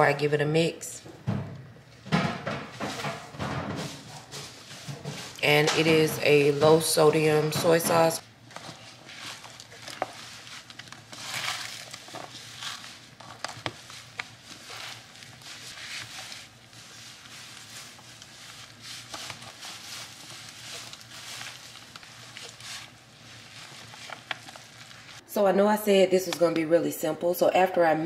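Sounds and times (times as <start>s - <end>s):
wet squishing of kneaded meat: 8.4s - 25.2s.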